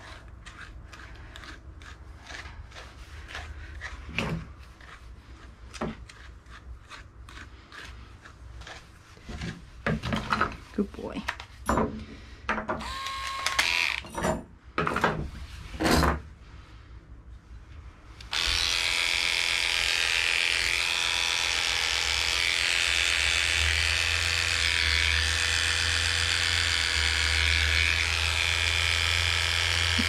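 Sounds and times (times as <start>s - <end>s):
electric dog clipper running: 12.8s - 14.0s, 18.3s - 30.0s.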